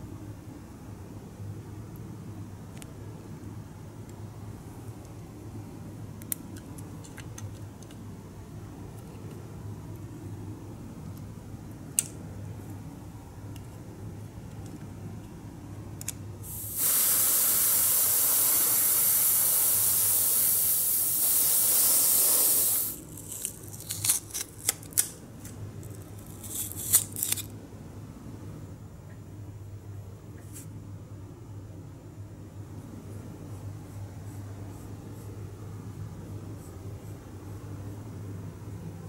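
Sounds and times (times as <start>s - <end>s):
airbrush spraying paint: 16.4s - 23.1s.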